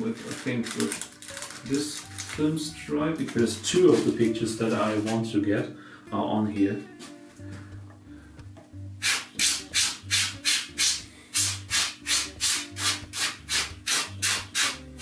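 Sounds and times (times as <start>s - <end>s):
soft background music: 0.0s - 15.0s.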